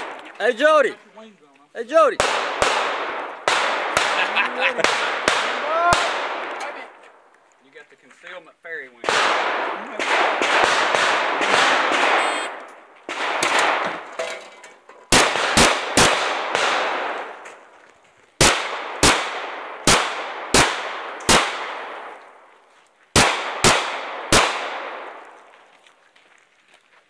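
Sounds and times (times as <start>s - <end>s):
pistol shots echoing: 2.2s - 6.9s, 9.0s - 14.1s, 15.1s - 17.4s, 18.4s - 22.2s, 23.2s - 25.4s.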